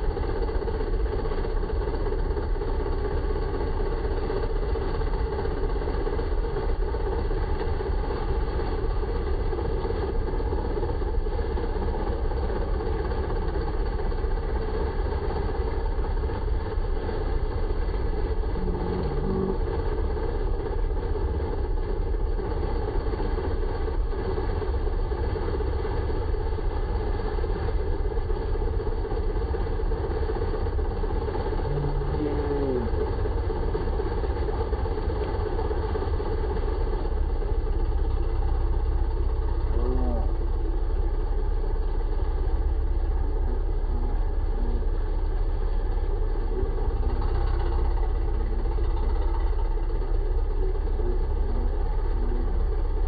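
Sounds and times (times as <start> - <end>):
tractor engine idling: 0.0 - 53.0.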